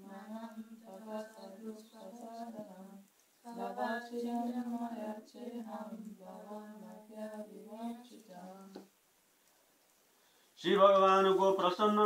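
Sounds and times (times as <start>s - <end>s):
person chanting verse: 0.0s - 8.8s.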